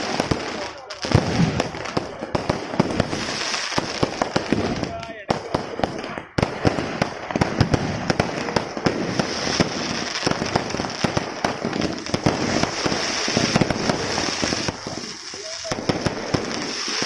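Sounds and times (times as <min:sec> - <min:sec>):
fireworks cracking and popping: 0:00.0 - 0:17.0
steady high hiss: 0:11.3 - 0:17.0.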